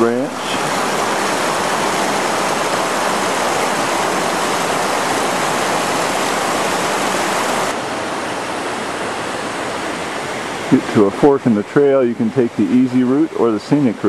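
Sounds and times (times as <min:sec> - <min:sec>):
water splashing over rock ledge: 0:00.0 - 0:07.8.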